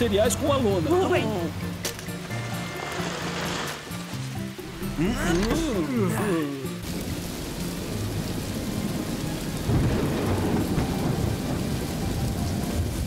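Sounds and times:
heavy rain falling: 0.0 - 13.0
low rumble of thunder: 6.9 - 13.0.

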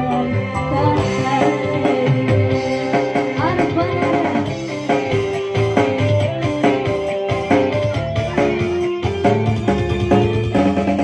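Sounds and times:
drum rhythm: 0.0 - 11.0
electronic keyboard: 0.0 - 11.0
woman singing into a microphone: 0.6 - 4.6.

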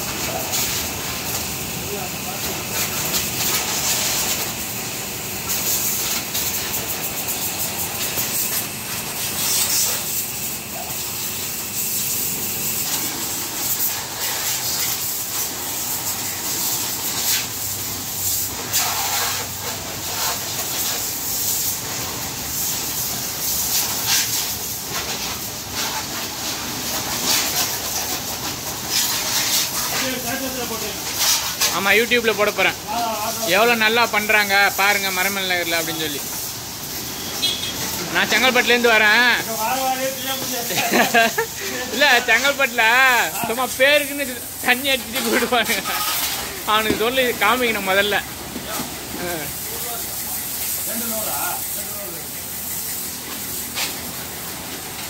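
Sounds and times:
water spattering off bodywork: 0.0 - 31.9
high-pressure water jet hissing: 0.0 - 55.0.

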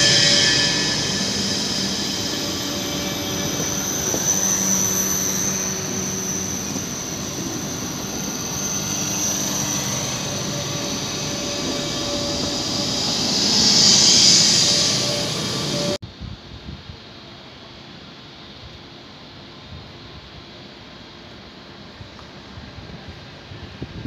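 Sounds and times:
electric drive whine: 0.0 - 16.0
train wheels rumbling on rails: 0.0 - 16.0.

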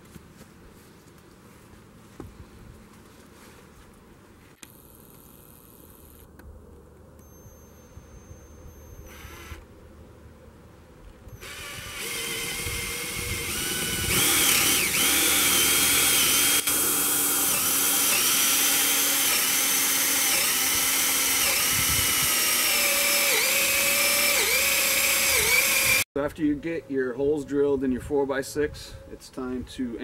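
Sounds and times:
drill boring into wood: 9.0 - 9.6, 11.3 - 26.0.

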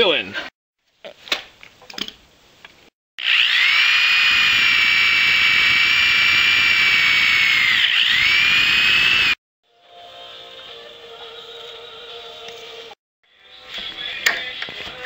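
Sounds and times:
electric drill whining into metal: 3.2 - 9.4.

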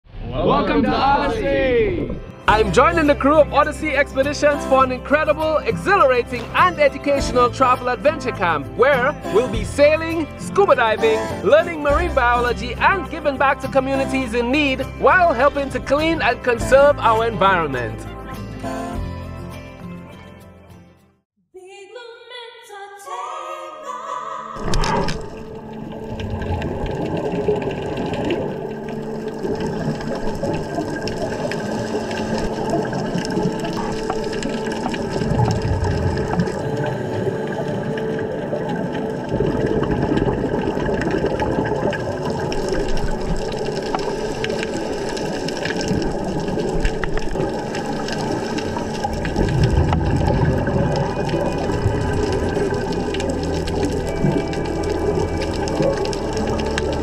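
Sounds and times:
bubbling of exhaled air: 24.6 - 57.0.

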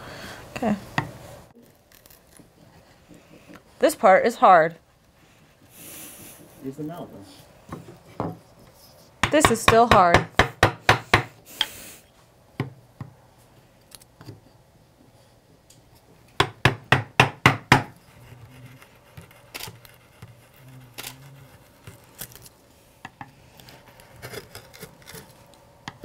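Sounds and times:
mallet knocking on chisel: 9.2 - 11.3, 16.4 - 17.9.

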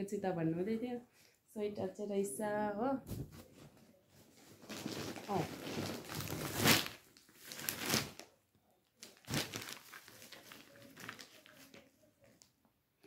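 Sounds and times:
plastic packaging crinkling: 4.4 - 8.4, 9.0 - 12.0.

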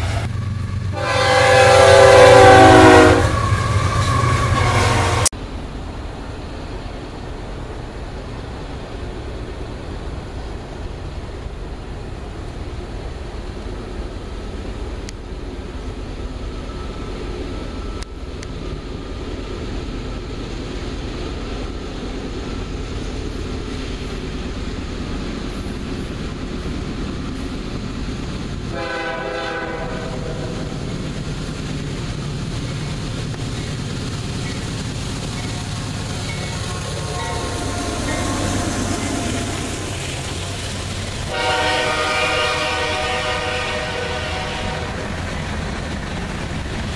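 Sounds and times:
locomotive horn blast: 0.0 - 5.3, 28.7 - 30.6, 37.0 - 39.7, 41.3 - 45.1
freight train rumbling on rails: 0.0 - 46.9.

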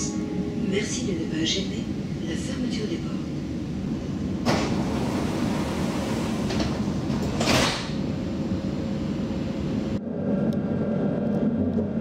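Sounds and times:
tram humming: 0.0 - 12.0
tram doors hissing: 0.8 - 9.9.

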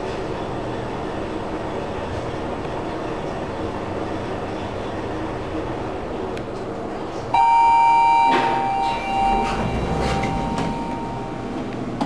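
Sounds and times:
elevator doors sliding open: 7.3 - 12.0
two-tone elevator chime: 7.4 - 11.7.

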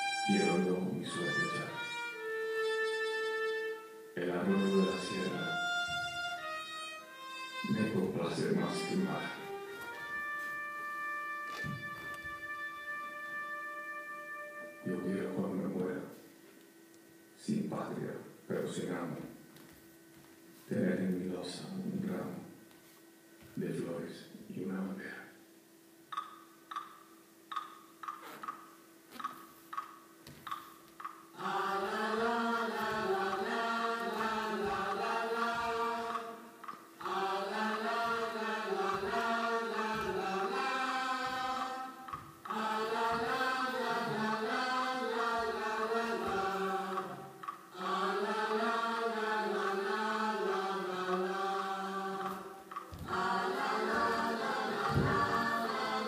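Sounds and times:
choir singing: 0.0 - 2.2, 2.9 - 5.6, 7.6 - 10.4, 31.3 - 56.0
evenly spaced struck notes: 0.0 - 16.2, 26.1 - 56.0.

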